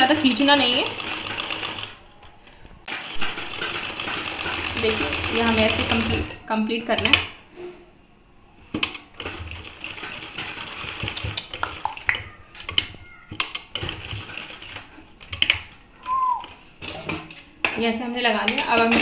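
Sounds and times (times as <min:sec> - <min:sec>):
sewing machine clattering: 0:00.0 - 0:02.0, 0:02.9 - 0:06.3, 0:08.8 - 0:11.8, 0:12.6 - 0:15.8, 0:18.2 - 0:19.0.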